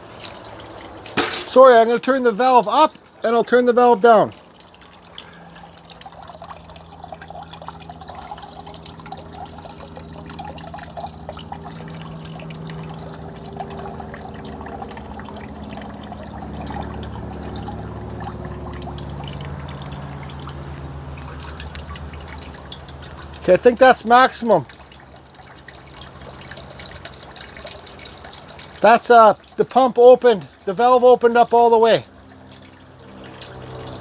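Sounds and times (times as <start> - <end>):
water trickling and splashing: 0.0 - 34.0
low hum: 4.6 - 23.4.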